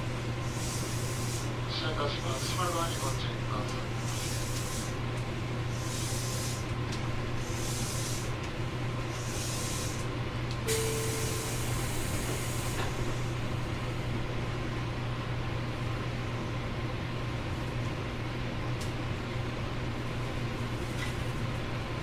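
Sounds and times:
train low hum: 0.0 - 22.0
burst of air hiss: 0.5 - 1.5, 5.8 - 6.6, 7.4 - 8.3, 9.1 - 10.0, 10.7 - 13.1.

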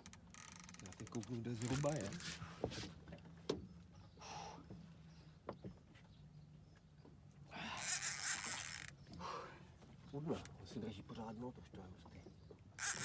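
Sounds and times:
fishing reel drag buzzing: 0.0 - 2.4, 7.7 - 9.0, 12.8 - 13.0.

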